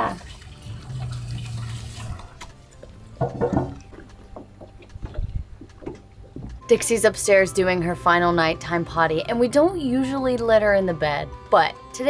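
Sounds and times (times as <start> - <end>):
dog eating wet food: 0.3 - 3.2.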